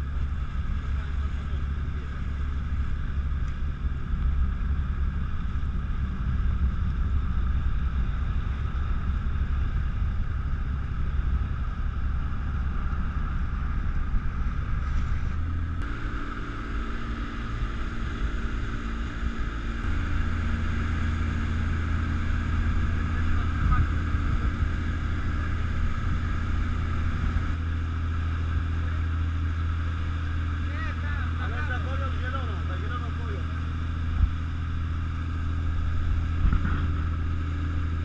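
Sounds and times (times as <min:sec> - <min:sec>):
motorboat engine running: 0:00.0 - 0:38.0.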